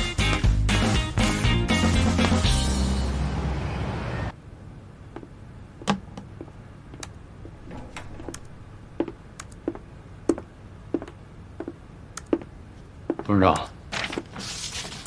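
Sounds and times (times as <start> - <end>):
footsteps on hard floor: 7.4 - 13.3.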